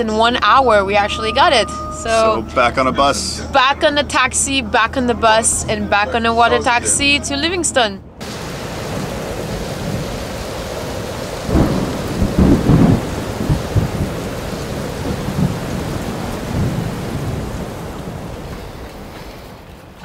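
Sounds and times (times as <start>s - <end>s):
low rumbles of thunder: 8.2s - 19.5s
rain hiss: 8.2s - 20.0s.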